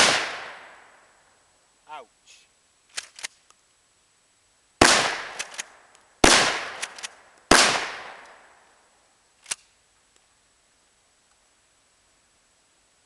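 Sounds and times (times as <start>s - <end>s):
shotgun shots: 0.0s - 0.8s, 4.8s - 8.5s
short clicks: 2.9s - 3.6s, 9.4s - 9.8s.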